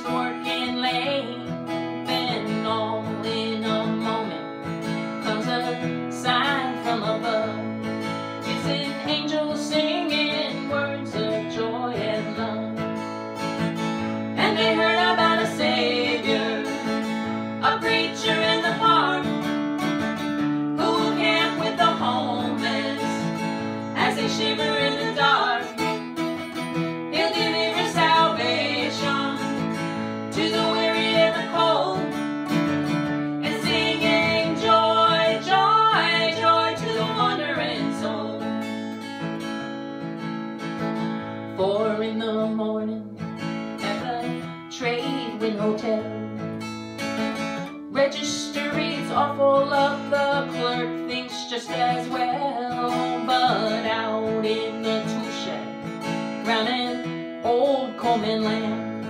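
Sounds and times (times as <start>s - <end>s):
acoustic guitar strumming folk song: 0.0s - 59.0s.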